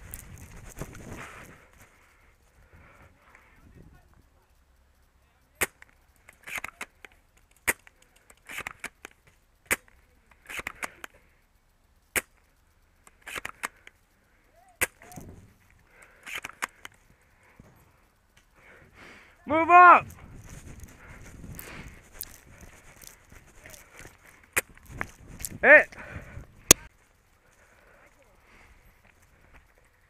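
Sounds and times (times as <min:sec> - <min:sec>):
quick clicks: 0:05.6 - 0:11.2, 0:11.9 - 0:14.1, 0:14.8 - 0:17.2.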